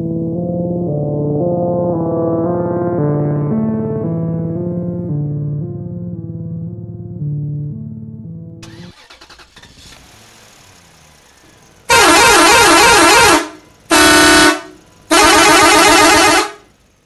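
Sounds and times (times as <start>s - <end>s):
background music: 0.0s - 8.8s
electronic horn blaring: 11.9s - 16.7s.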